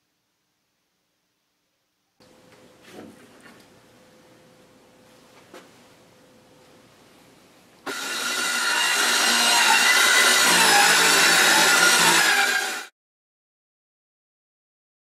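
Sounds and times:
circular saw cutting wood: 0:07.9 - 0:12.9.

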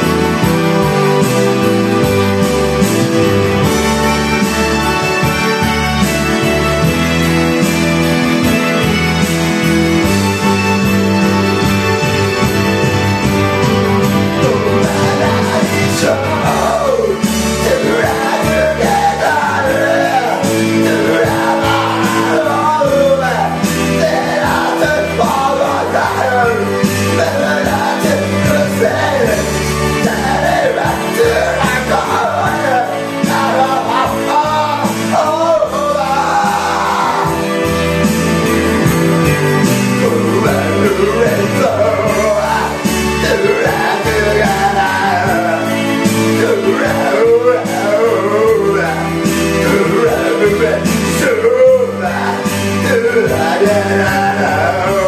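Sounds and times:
karaoke backing track: 0:00.0 - 0:55.0
man singing into a microphone: 0:14.2 - 0:37.6, 0:39.9 - 0:55.0.

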